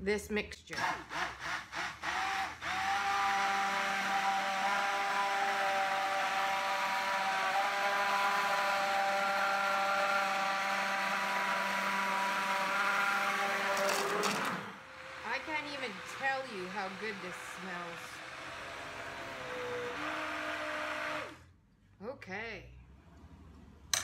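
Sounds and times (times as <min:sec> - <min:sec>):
immersion blender whining: 0:00.8 - 0:21.5.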